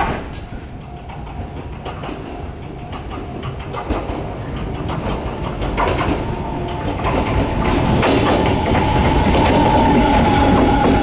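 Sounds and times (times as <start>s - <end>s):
electric train running: 0.5s - 11.0s
wheels clicking over rail: 0.9s - 11.0s
wheels squealing: 2.4s - 11.0s.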